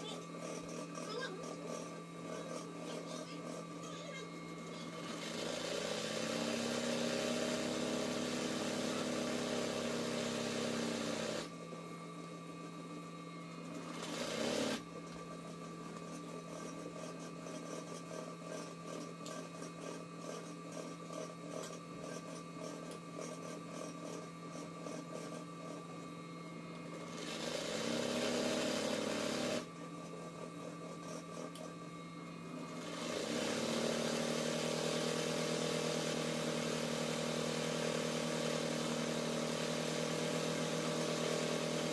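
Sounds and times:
embroidery machine stitching: 4.6 - 11.5, 13.7 - 14.8, 26.9 - 29.7, 32.5 - 41.9.

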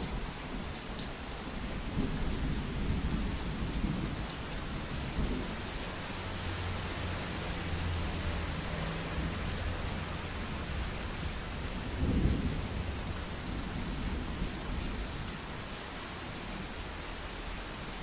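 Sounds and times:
heavy rain falling: 0.0 - 18.0
thunder rumbling: 9.1 - 15.5.

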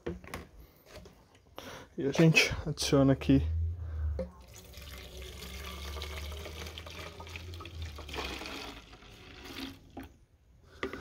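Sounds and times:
liquid pouring into a plastic bottle: 4.4 - 10.2.

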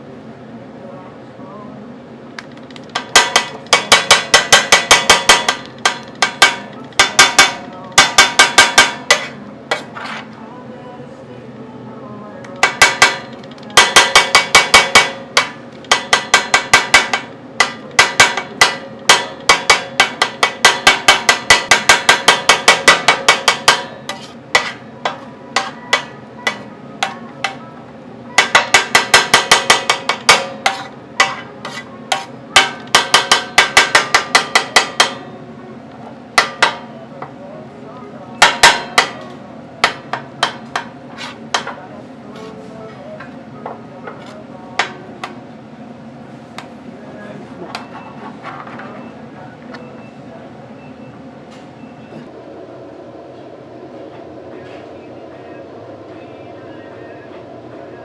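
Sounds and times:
metal spatula clacking on griddle: 2.4 - 9.9, 12.6 - 27.6, 28.4 - 35.3.

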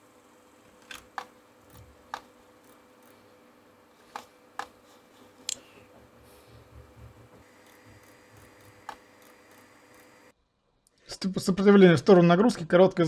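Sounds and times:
faint steady hum: 0.0 - 12.0
mouse and keyboard clicks: 4.1 - 4.8.

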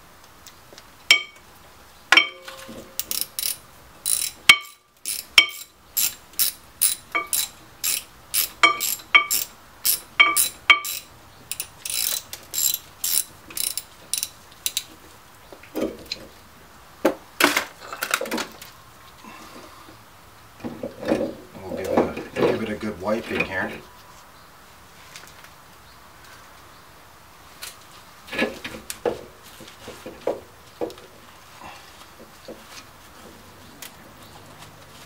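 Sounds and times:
ratchet wrench clicking: 3.0 - 14.9.

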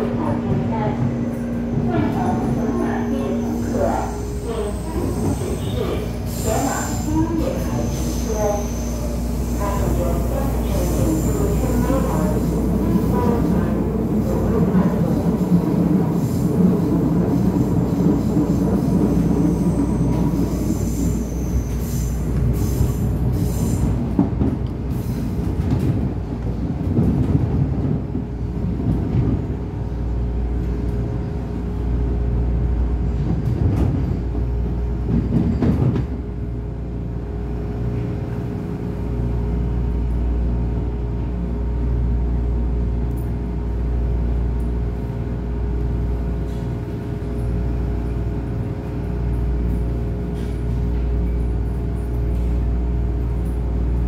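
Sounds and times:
train rumble and hum: 0.0 - 54.0
train wheel squeal: 2.3 - 12.2, 17.5 - 24.0, 35.2 - 36.0.

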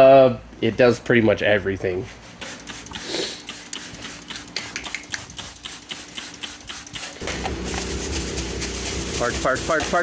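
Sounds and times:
spray bottle spritzing: 2.4 - 10.0.

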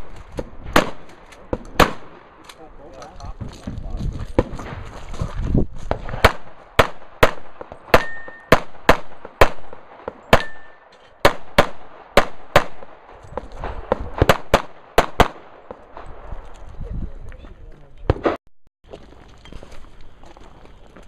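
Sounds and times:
gunshots: 0.0 - 2.5, 5.9 - 16.3, 18.1 - 18.4.

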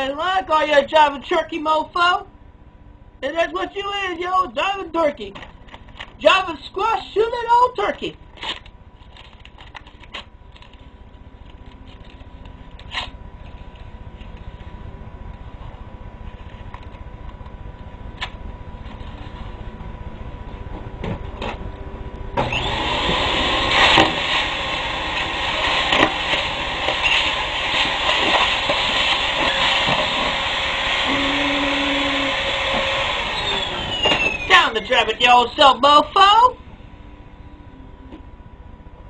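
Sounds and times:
vacuum cleaner running: 18.8 - 36.9.

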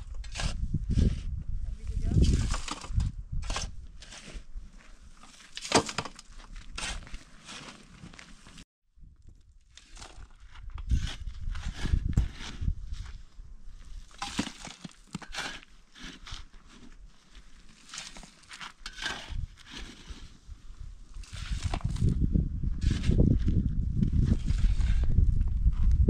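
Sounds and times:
shovel scraping stony soil: 0.0 - 8.6, 9.7 - 25.4
soil rattling into metal wheelbarrow: 5.2 - 8.5, 14.0 - 20.4.

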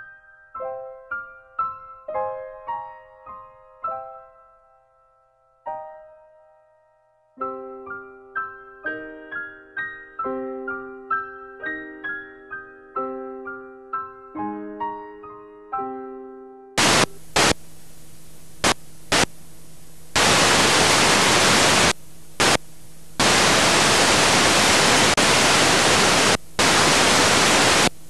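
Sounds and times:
faint low hum: 16.8 - 28.0
television static hiss: 16.8 - 28.0.

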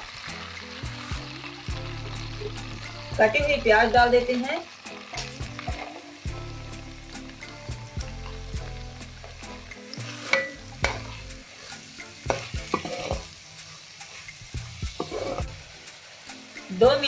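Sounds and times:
onions sizzling in oil: 0.0 - 17.0
metal spatula scraping pan: 10.0 - 13.3, 14.1 - 15.5.

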